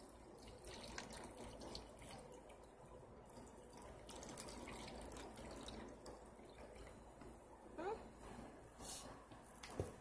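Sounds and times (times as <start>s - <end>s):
water trickling into glass vase: 0.0s - 7.3s
water drips: 0.0s - 7.4s.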